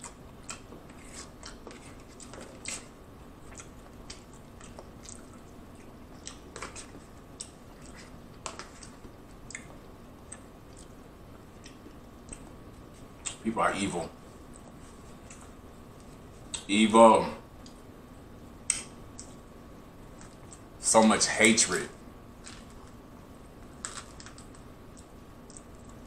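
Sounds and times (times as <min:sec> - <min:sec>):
wet chewing mouth sounds: 0:00.0 - 0:11.0.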